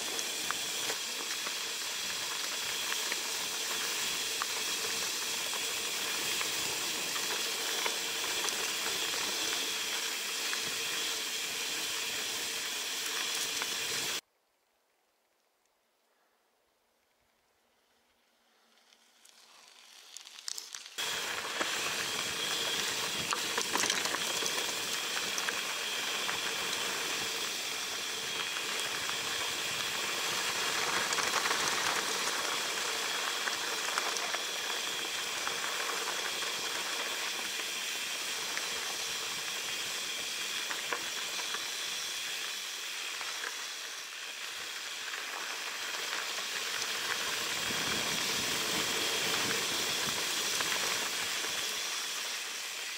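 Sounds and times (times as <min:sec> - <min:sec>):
bike clicks and rattles: 0:00.0 - 0:14.2, 0:18.8 - 0:52.9
bike tyre noise on dirt: 0:00.0 - 0:14.2, 0:17.0 - 0:52.9
wind hiss on microphone: 0:21.0 - 0:52.9.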